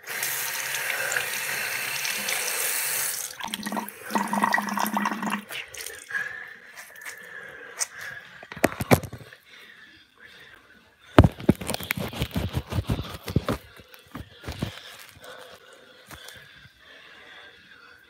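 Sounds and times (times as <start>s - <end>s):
tap water running into sink: 0.0s - 6.0s.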